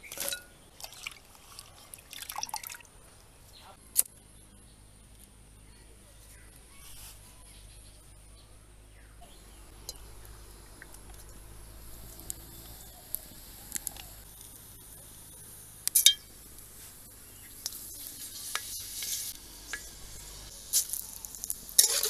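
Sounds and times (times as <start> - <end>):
oil crackling and sizzling in wok: 9.5 - 22.0.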